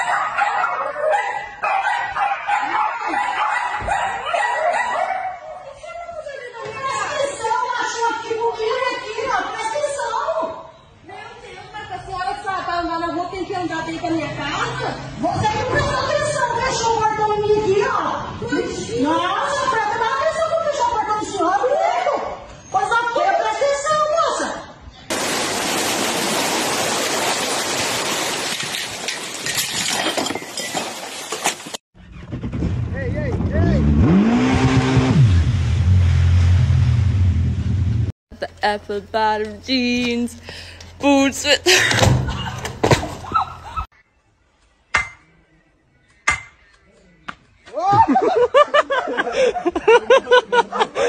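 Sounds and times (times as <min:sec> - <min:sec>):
heavy rain pouring: 0:25.1 - 0:29.4
sledgehammer hitting wooden post: 0:44.9 - 0:45.2
person laughing hard: 0:47.8 - 0:51.0.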